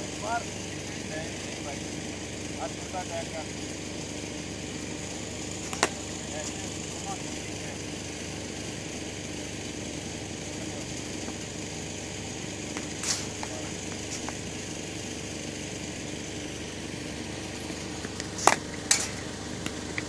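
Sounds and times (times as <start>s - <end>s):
mechanical engine drone: 0.0s - 20.0s
cricket bat striking ball: 5.7s - 6.0s, 12.6s - 14.4s.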